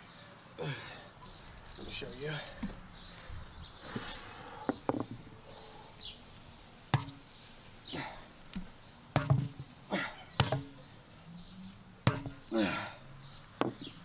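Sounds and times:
sledgehammer knocking against tire: 0:09.2 - 0:09.6, 0:10.4 - 0:10.8, 0:12.1 - 0:12.4, 0:13.6 - 0:13.9.

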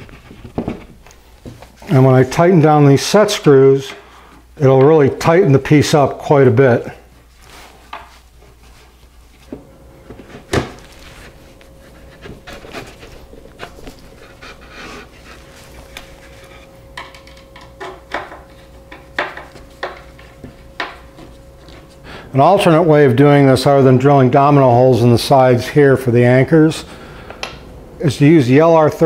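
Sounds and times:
hands handling wooden box: 0:07.8 - 0:21.9.

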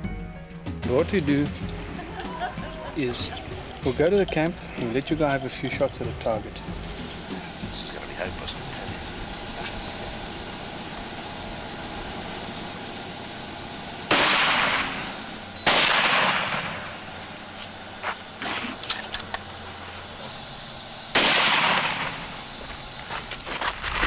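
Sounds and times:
rifle shots: 0:14.1 - 0:16.9, 0:21.1 - 0:22.4.

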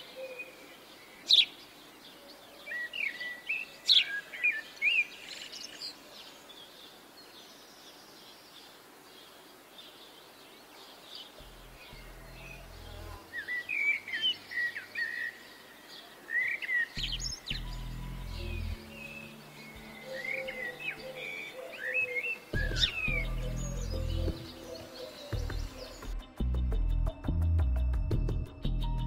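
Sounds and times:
low droning music note: 0:11.4 - 0:13.6, 0:17.0 - 0:21.6
birds chirping and whistling: 0:11.4 - 0:28.8.

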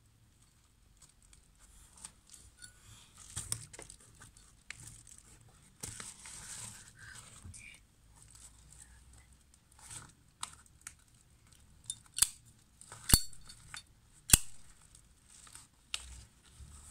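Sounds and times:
plastic sleeve rustling: 0:03.1 - 0:07.0.

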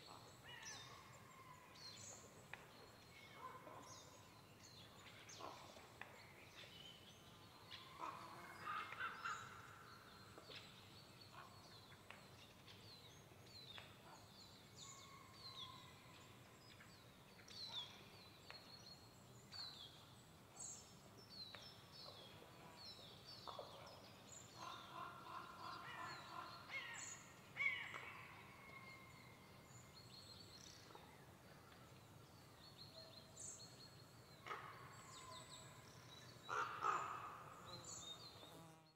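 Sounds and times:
faint forest ambience: 0:00.0 - 0:38.9
small birds calling: 0:32.7 - 0:38.7
harsh bird calls: 0:36.5 - 0:38.0.

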